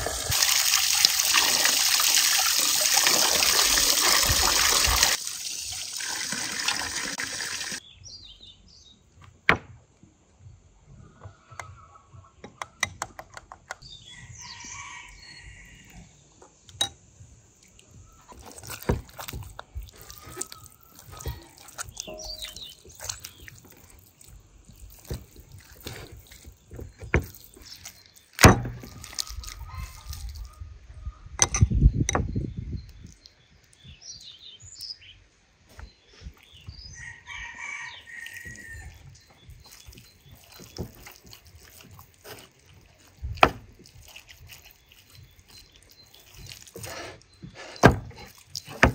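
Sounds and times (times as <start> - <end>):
rooster crowing: 14.2 - 16.1, 37.0 - 39.0
hands squelching on raw meat: 17.5 - 30.6, 37.9 - 48.9.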